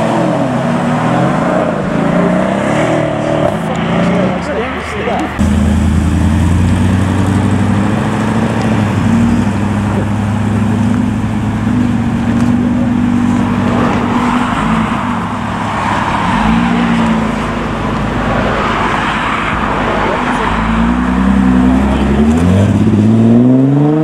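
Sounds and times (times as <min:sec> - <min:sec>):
car engine pulling away: 0:00.0 - 0:24.0
car engine idling: 0:03.2 - 0:14.2.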